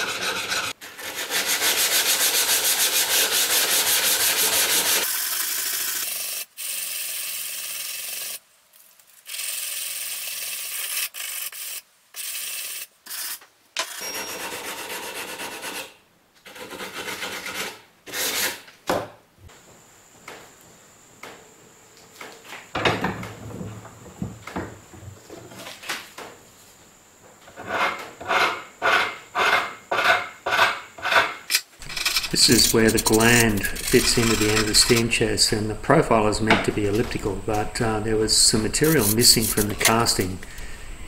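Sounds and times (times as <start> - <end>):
sanding block on metal: 0.0 - 8.4, 27.6 - 35.5, 38.4 - 40.3.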